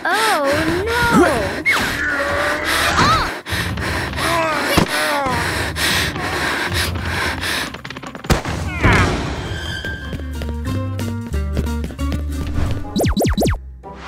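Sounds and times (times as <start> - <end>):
creature cries and whimpers: 0.0 - 3.4, 4.2 - 5.5
sound effect noise bed: 12.6 - 13.6.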